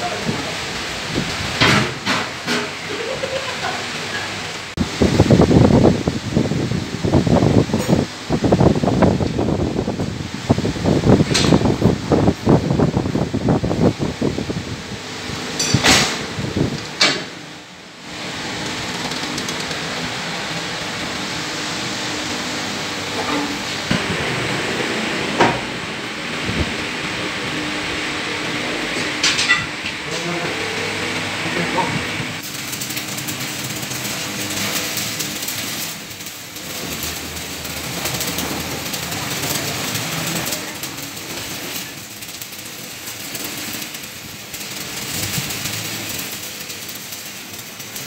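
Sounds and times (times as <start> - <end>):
arc welding crackling hiss: 0.0 - 48.0
bending machine hum: 0.0 - 48.0
steel bar clanking against metal: 15.6 - 16.2, 29.2 - 29.7.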